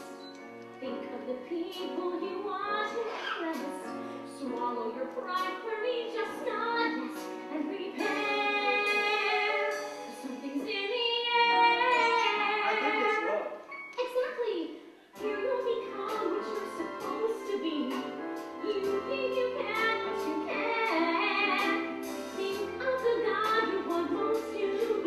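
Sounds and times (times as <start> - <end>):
woman singing: 0.8 - 13.4, 15.2 - 25.0
instrumental accompaniment: 15.1 - 25.0.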